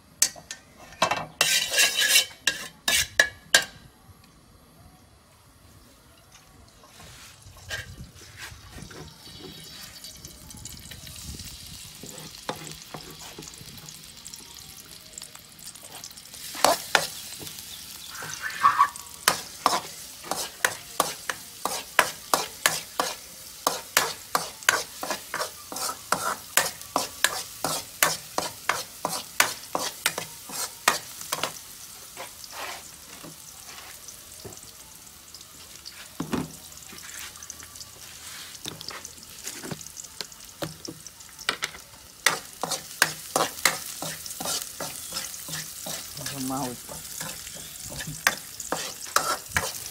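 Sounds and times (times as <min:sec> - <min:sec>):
garlic sizzling in a wok: 0:00.0 - 0:03.9, 0:06.6 - 0:49.9
metal spatula scraping wok: 0:00.6 - 0:03.7, 0:06.9 - 0:10.0, 0:12.0 - 0:14.0, 0:18.1 - 0:31.6, 0:42.2 - 0:49.9.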